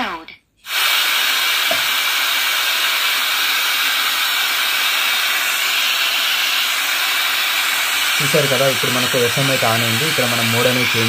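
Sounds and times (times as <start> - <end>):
radio static hiss: 7.6 - 11.0.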